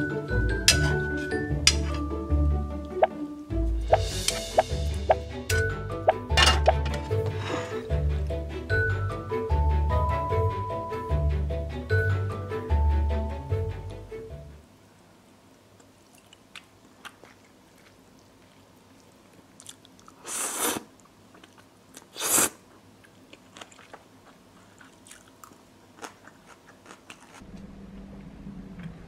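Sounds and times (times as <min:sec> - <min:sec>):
quiet chewing: 0:15.5 - 0:27.6
slurping noodles: 0:20.1 - 0:21.0, 0:22.0 - 0:22.6.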